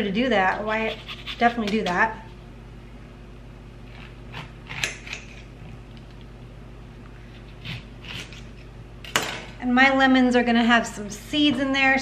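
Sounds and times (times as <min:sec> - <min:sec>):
steady low hum: 0:00.0 - 0:12.0
knife cutting on countertop: 0:07.4 - 0:08.5.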